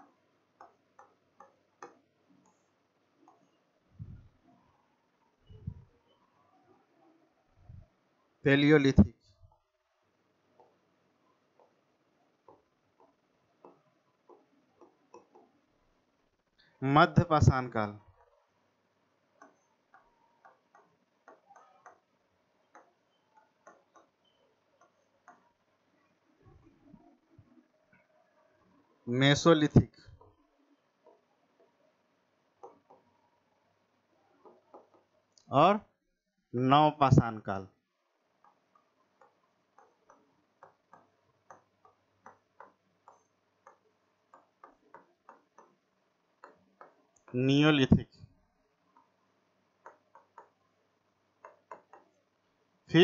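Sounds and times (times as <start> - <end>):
pen tapping on a screen: 0.0 - 3.6, 10.6 - 10.8, 11.5 - 15.6, 19.4 - 25.7, 30.1 - 31.9, 32.6 - 33.2, 34.4 - 35.2, 38.4 - 47.4, 48.8 - 52.4.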